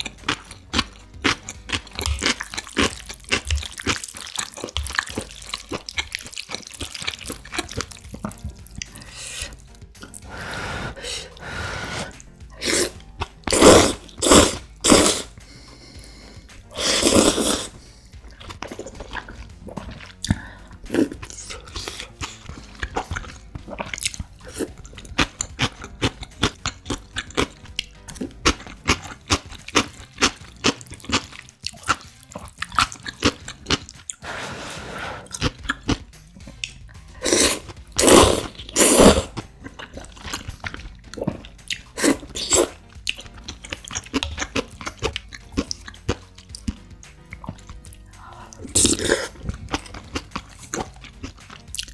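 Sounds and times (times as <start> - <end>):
crunching and chewing: 0.0 - 10.3, 12.1 - 34.2, 35.2 - 51.9
slurping noodles: 1.4 - 27.6, 31.2 - 36.0, 37.1 - 45.0, 48.5 - 51.9
wet mouth clicks: 4.6 - 10.3, 35.3 - 51.9.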